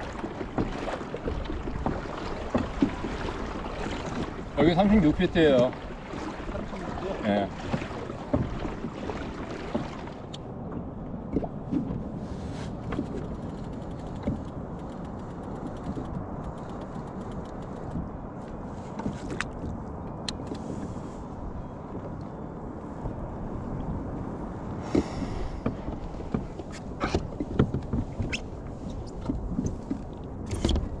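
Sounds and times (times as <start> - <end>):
small waves against kayak: 0.0 - 16.7, 24.7 - 31.0.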